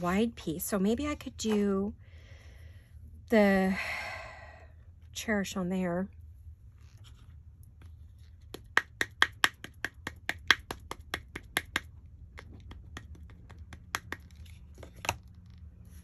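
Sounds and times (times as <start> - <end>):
rubber stamp tapping ink pad: 8.5 - 14.4.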